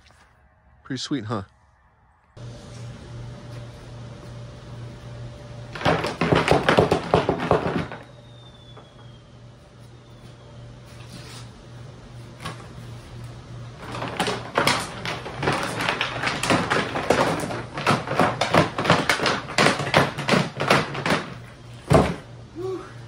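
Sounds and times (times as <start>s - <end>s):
metal nuts rattling in plastic tank: 13.8s - 21.4s.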